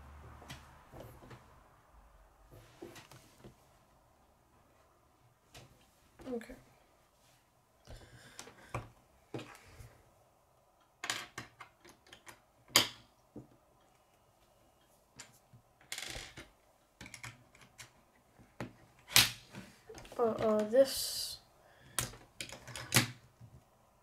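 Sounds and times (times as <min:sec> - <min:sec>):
plastic toy pieces clicking: 0:22.0 - 0:23.2.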